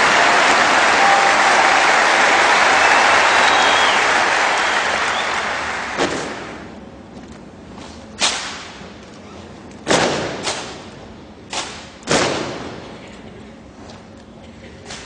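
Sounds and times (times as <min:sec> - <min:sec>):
applause: 0:00.0 - 0:06.6.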